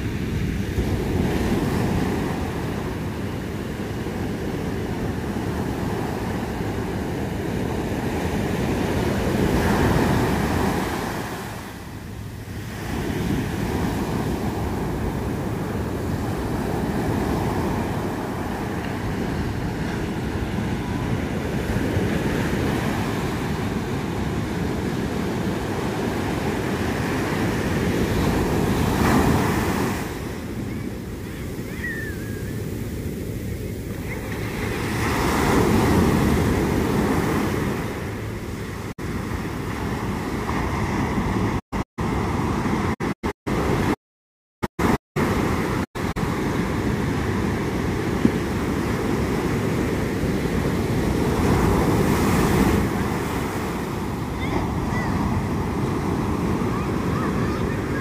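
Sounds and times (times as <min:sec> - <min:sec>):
wind rumble on microphone: 0:00.0 - 0:43.9
ocean surf breaking: 0:00.0 - 0:44.0, 0:44.8 - 0:58.0.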